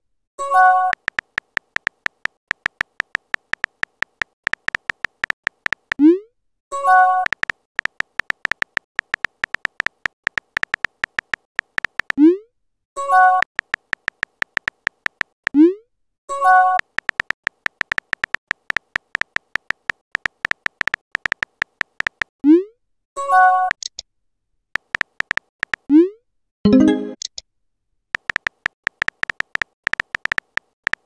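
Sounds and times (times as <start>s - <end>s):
keyboard tap clicks: 0.9s - 6.0s, 7.2s - 12.2s, 13.4s - 15.4s, 16.8s - 22.3s, 24.8s - 25.9s, 28.2s - 31.0s.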